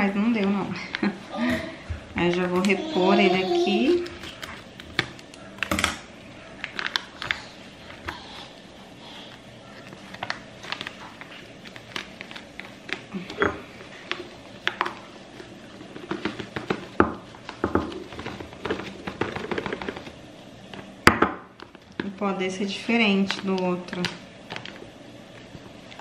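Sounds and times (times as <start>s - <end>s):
foil packet crinkling: 6.4s - 8.5s, 9.6s - 20.9s.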